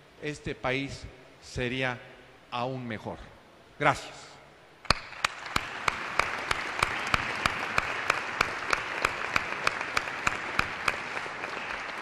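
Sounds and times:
audience applauding: 4.9s - 12.0s
person clapping close by: 4.9s - 12.0s.

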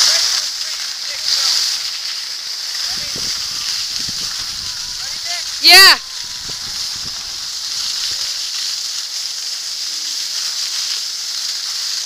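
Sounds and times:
skis sliding over snow: 0.0s - 9.0s.

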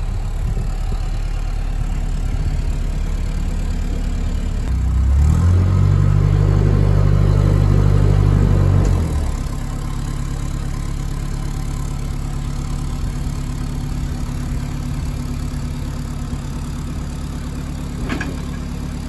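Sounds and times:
boat diesel engine idling: 0.0s - 5.1s, 9.2s - 19.0s.

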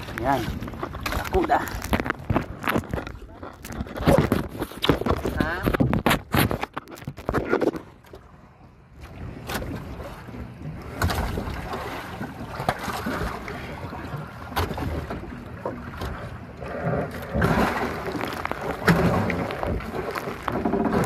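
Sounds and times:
wind on microphone: 0.0s - 7.8s
water sloshing: 0.0s - 21.0s.

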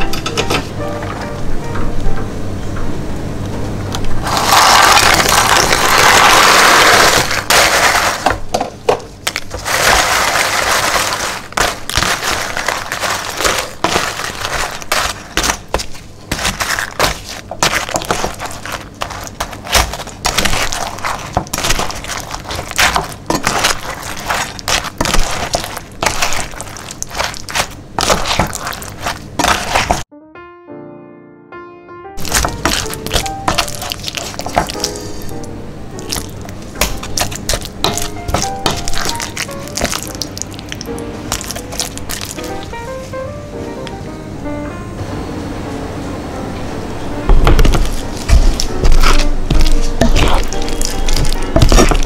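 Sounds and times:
biscuits cracking and crunching: 4.2s - 8.4s, 9.3s - 30.0s, 32.2s - 35.3s, 36.0s - 42.8s, 47.8s - 52.0s.

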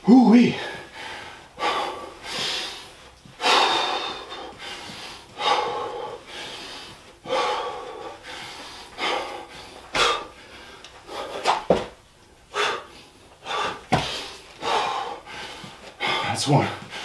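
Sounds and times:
man breathing hard: 0.3s - 11.7s, 12.4s - 17.0s.

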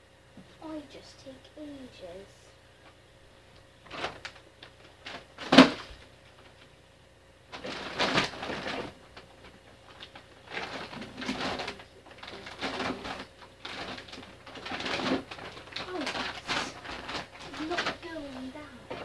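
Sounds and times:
items rustling by hand: 3.8s - 6.8s, 7.5s - 19.0s.

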